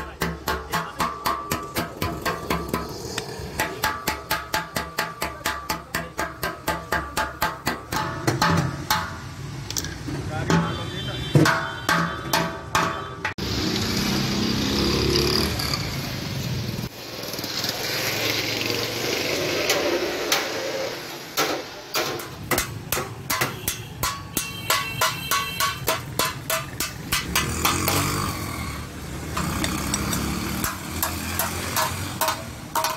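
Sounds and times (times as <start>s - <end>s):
hammer striking sheet metal: 21.4s - 28.2s, 30.6s - 32.9s
vehicle engine rumbling: 22.4s - 32.9s.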